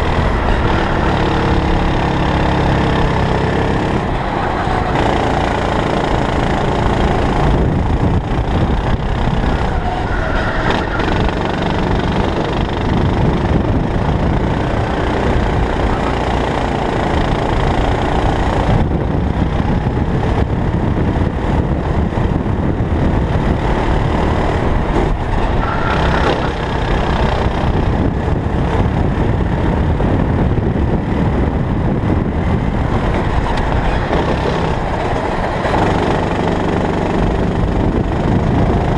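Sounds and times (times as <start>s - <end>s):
kart engine running hard: 0.0s - 38.9s
road rumble: 0.0s - 38.9s
wind noise on microphone: 0.0s - 38.9s.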